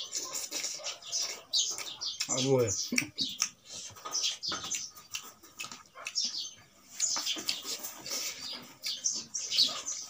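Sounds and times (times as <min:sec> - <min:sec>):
wet mouth smacking: 0:02.9 - 0:03.8, 0:04.7 - 0:06.3
person chewing food: 0:02.9 - 0:10.0.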